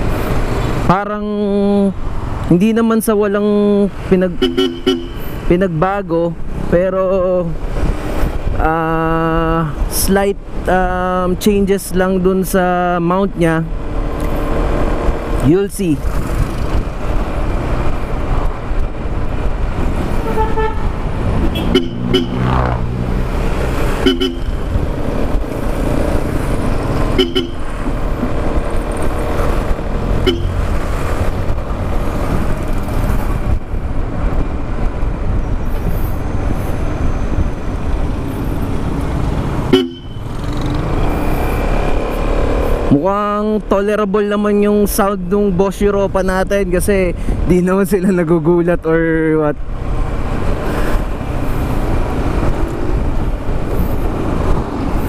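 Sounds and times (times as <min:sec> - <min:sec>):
road and wind noise: 0:00.0 - 0:55.0
scooter horn honks: 0:04.4 - 0:05.2, 0:21.6 - 0:22.4, 0:24.0 - 0:24.6, 0:27.2 - 0:27.6, 0:30.2 - 0:30.6, 0:39.7 - 0:40.2.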